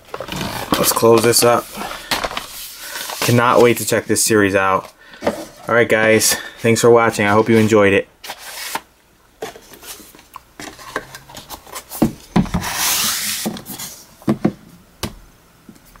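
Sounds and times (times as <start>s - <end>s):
cardboard box sliding scrape: 12.6s - 14.0s.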